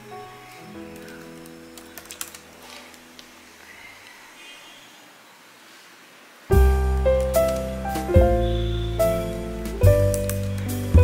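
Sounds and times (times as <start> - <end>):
soft keyboard melody: 0.0 - 3.4, 6.5 - 11.0
held bass notes: 6.5 - 11.0.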